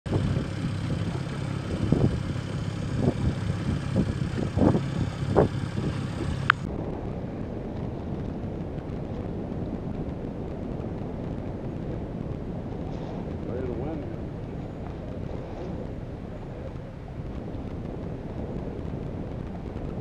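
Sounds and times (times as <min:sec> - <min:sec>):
boat motor running: 0:00.0 - 0:06.7
hiss of wind and water: 0:00.1 - 0:20.0
wind gusting on microphone: 0:00.1 - 0:20.0.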